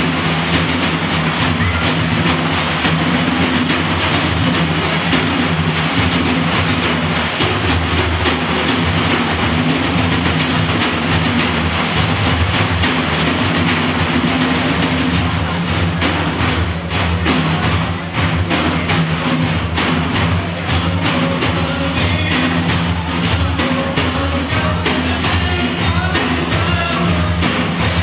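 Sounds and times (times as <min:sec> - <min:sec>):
frame drums rolling: 0:00.0 - 0:28.0.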